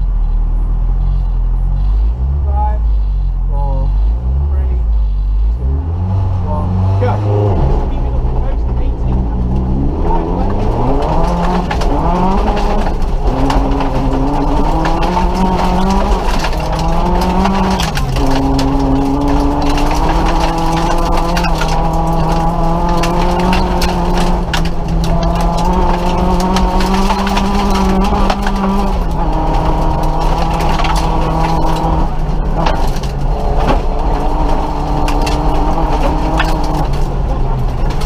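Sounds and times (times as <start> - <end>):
car engine accelerating: 0.0 - 38.0
sharp clicks and knocks: 7.6 - 38.0.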